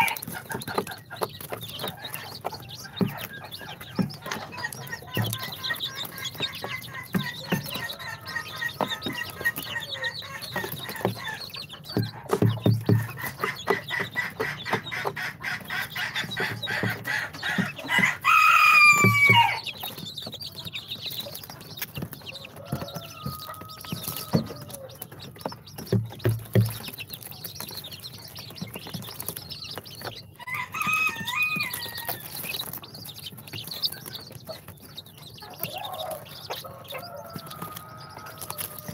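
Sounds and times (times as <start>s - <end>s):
baby chicks peeping: 0.0s - 38.9s.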